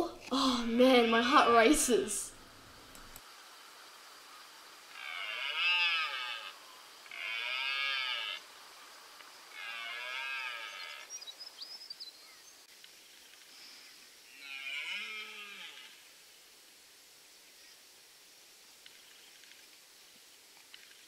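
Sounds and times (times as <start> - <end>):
deer stag roaring: 4.9 - 8.5, 9.5 - 11.1, 14.3 - 16.0.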